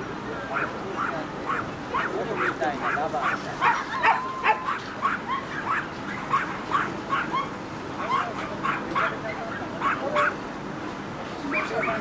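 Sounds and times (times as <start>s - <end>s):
dog barking in high yaps: 0.5s - 2.2s, 2.8s - 10.4s.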